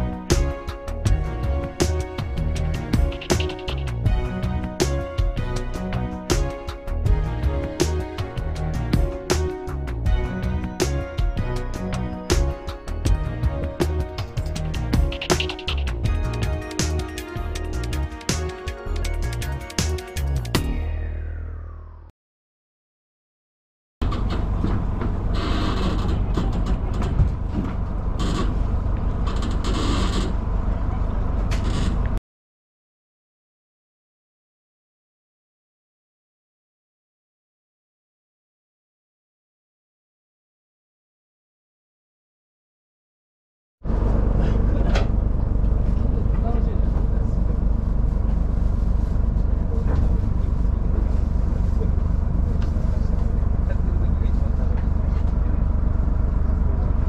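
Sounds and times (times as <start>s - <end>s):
boat engine rumbling: 0.0s - 22.0s, 24.0s - 32.2s, 43.9s - 57.0s
steady low rumble: 43.9s - 57.0s.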